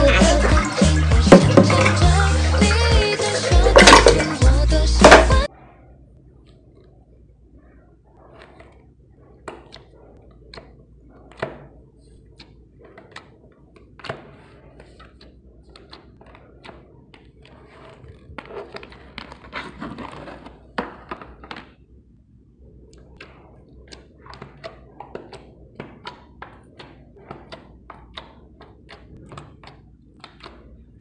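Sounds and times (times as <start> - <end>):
slime squishing with sticky pops: 22.9 - 31.0.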